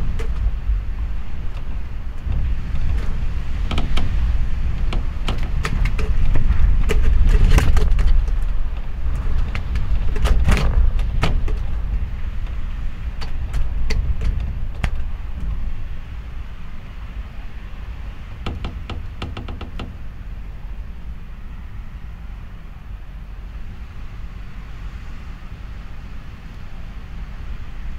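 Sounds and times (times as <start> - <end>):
sharp clicks and knocks: 0.0 - 0.6, 1.5 - 12.6, 13.2 - 15.6, 18.4 - 20.0
gale wind rumbling against house: 0.0 - 27.9.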